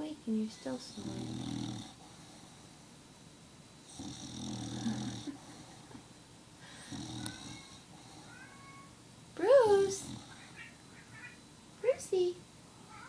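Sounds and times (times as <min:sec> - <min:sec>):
dog snoring: 0:00.8 - 0:02.7, 0:03.8 - 0:06.0, 0:06.7 - 0:08.3, 0:09.7 - 0:10.5.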